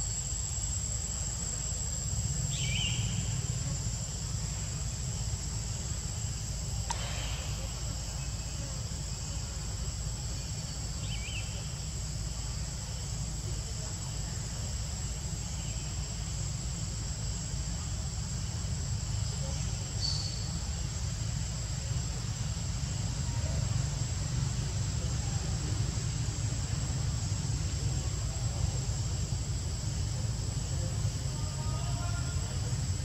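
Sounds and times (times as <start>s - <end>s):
insects droning: 0.0s - 33.0s
brief click: 6.9s - 7.3s.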